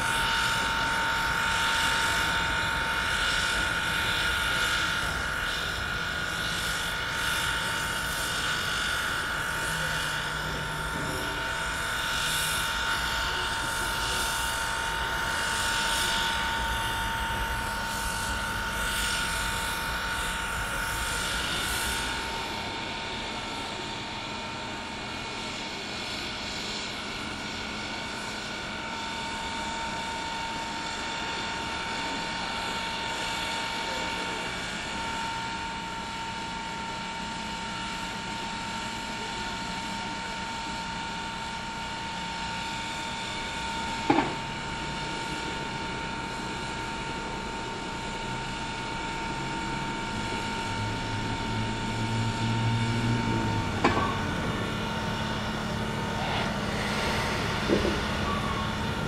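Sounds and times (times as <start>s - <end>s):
steam locomotive whine and hiss: 0.0s - 59.0s.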